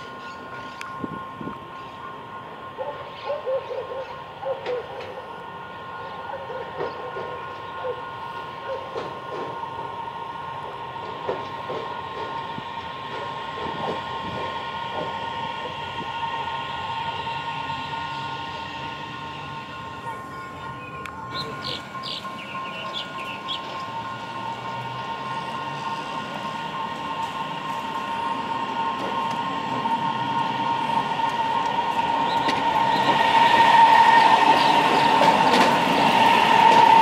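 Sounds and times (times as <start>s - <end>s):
electric train whining: 0.0s - 37.0s
wheels clacking: 19.6s - 37.0s.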